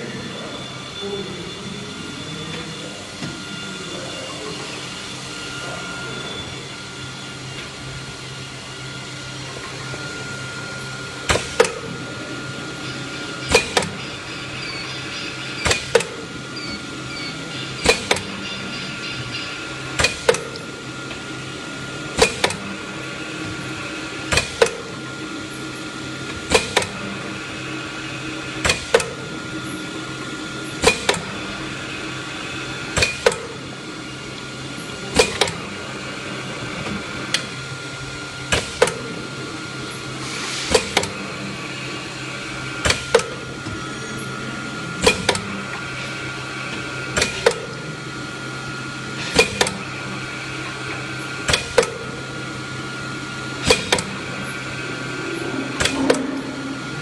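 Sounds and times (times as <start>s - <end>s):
bottle-filling machine hum: 0.0s - 57.0s
machine double clack: 12.8s - 20.6s.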